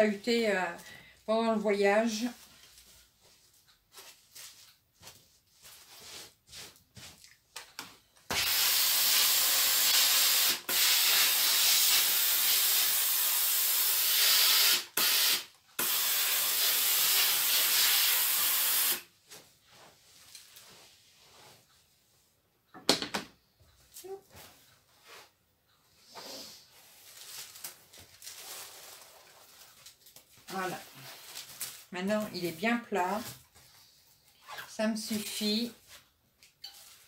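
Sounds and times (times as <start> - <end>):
steam iron hissing: 8.3 - 19.0.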